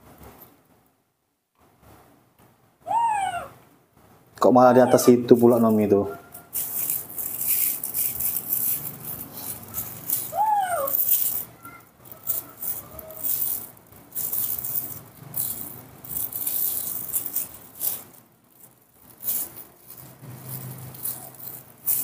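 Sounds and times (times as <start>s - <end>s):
plastic bag crinkling: 5.1s - 22.0s.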